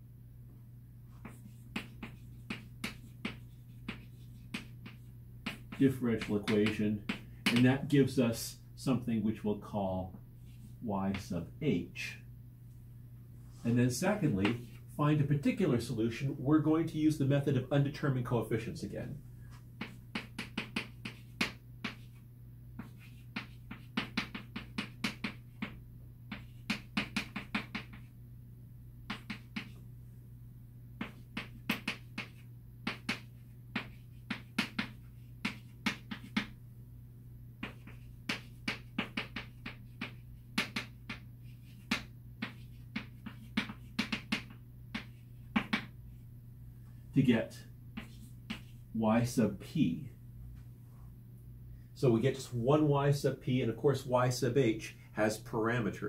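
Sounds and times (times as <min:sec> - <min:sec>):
steady low hum: 0:00.0 - 0:56.0
chalk tapping on chalkboard: 0:01.1 - 0:07.8, 0:14.3 - 0:14.8, 0:19.5 - 0:22.2, 0:22.8 - 0:28.1, 0:29.0 - 0:29.8, 0:31.0 - 0:36.6, 0:37.6 - 0:46.1, 0:47.9 - 0:48.8.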